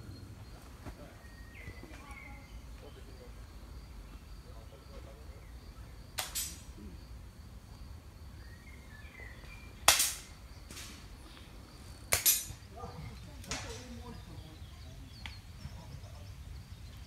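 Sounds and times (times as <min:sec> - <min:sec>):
air rifle shots: 0:06.2 - 0:06.6, 0:09.8 - 0:11.0, 0:12.1 - 0:12.6.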